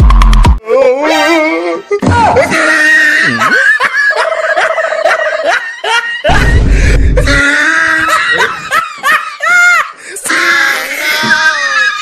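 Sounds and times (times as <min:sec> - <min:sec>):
deep low rumble: 0:06.3 - 0:07.5.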